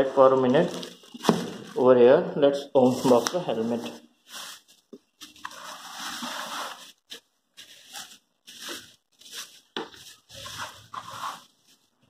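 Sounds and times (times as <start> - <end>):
plastic bag crinkling: 2.9 - 12.0.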